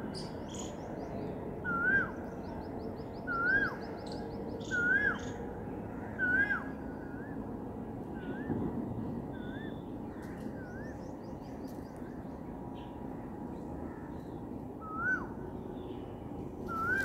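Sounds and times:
low background noise: 0.0 - 17.0
bird chirping: 0.1 - 5.4
swooping bird call: 16.7 - 17.0.

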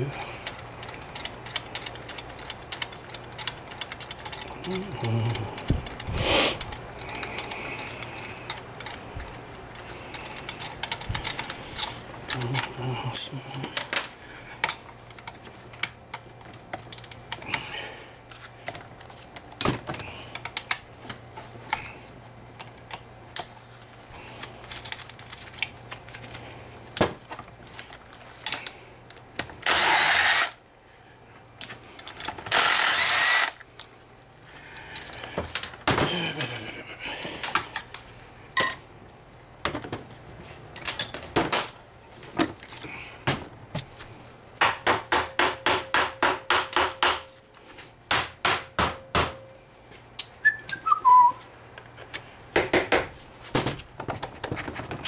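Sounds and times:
power drill running: 29.6 - 30.6, 32.5 - 33.6
tools clinking: 40.8 - 41.3.

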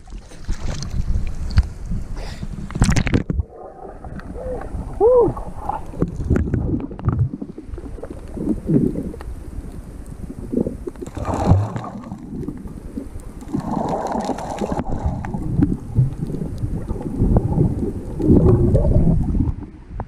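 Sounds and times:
muffled underwater rush: 0.0 - 20.0
bubbling: 2.7 - 20.0.

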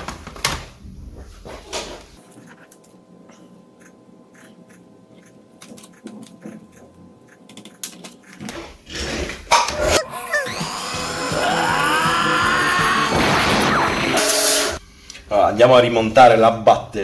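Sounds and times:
faint hum: 0.8 - 8.4.

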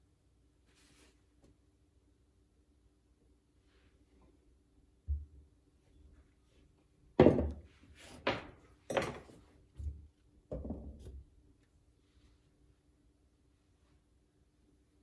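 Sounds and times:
knocks and thumps: 7.2 - 11.2.

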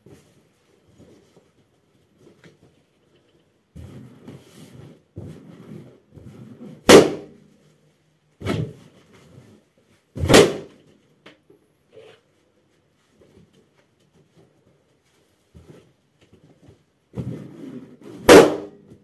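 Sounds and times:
balloons popping: 6.9 - 7.4, 10.2 - 10.8.

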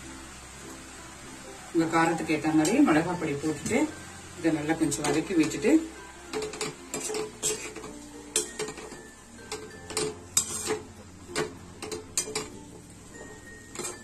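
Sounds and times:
spatula scraping a pan: 6.3 - 12.6, 13.2 - 14.0.

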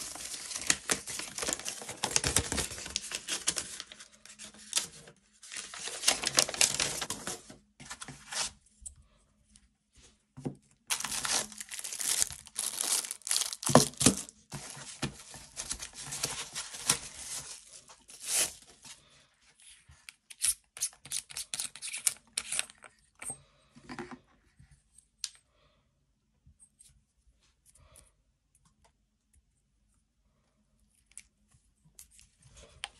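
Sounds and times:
packing paper crinkling: 0.0 - 8.4, 10.9 - 18.8.

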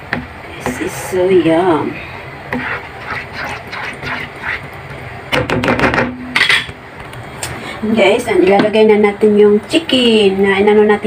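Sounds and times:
utensil stirring thick sauce: 1.9 - 5.1
utensil scraping and tapping pan: 2.5 - 4.8.

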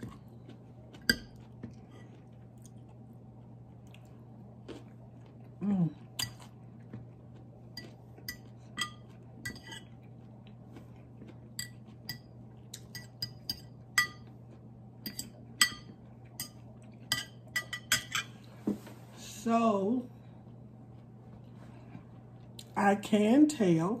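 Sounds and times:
fork clinking on ceramic plate: 7.8 - 9.9, 11.6 - 14.3, 15.0 - 18.3.

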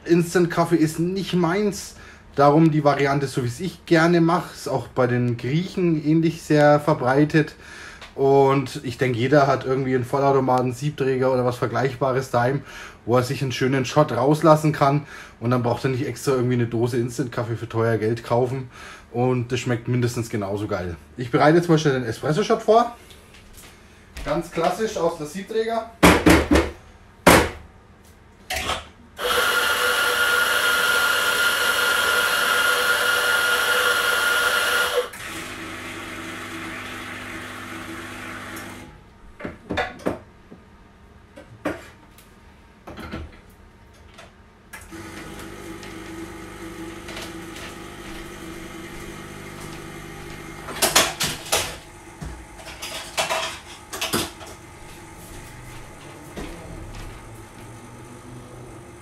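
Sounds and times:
coffee grinder running: 29.2 - 38.9, 44.8 - 59.0
espresso machine pump humming: 29.2 - 38.9, 44.9 - 59.0
portafilter knocks and clatter: 50.7 - 54.6.

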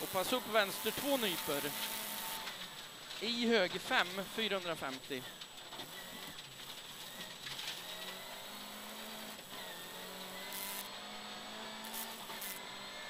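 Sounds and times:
car engine running under load: 0.0 - 13.0.

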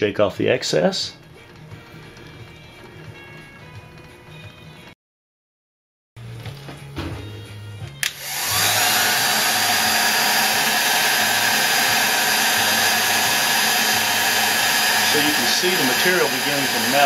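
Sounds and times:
hot-air blower switch click: 8.0 - 8.5
hot-air blower rushing air: 8.0 - 17.0.

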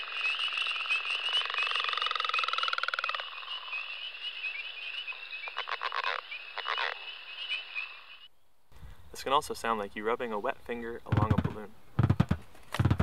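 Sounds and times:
frog calling: 0.0 - 8.3.

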